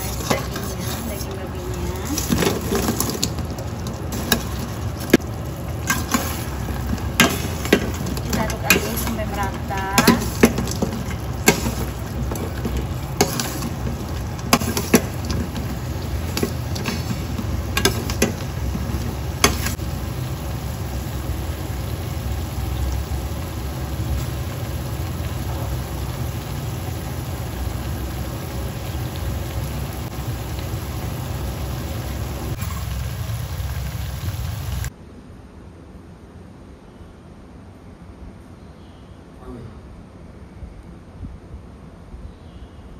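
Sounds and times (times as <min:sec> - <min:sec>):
spatula scraping a pan: 0:00.0 - 0:01.4, 0:05.8 - 0:19.8
pork sizzling in a frying pan: 0:00.0 - 0:34.9.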